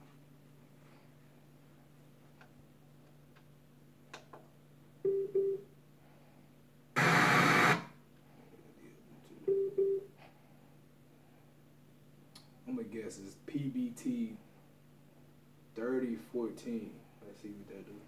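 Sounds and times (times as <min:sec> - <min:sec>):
loud static hiss: 0:06.9 - 0:08.0.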